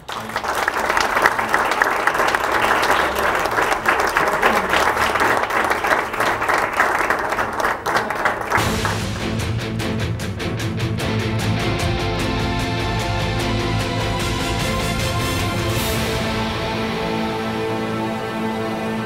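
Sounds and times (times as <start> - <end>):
audience applauding: 0.0 - 9.6
music with a steady beat: 8.6 - 18.0.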